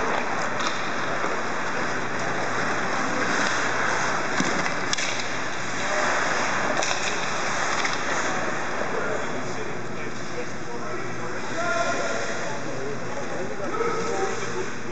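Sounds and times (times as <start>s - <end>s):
hockey sticks and puck clicks: 0.0s - 8.6s
skates scraping ice: 0.0s - 9.0s.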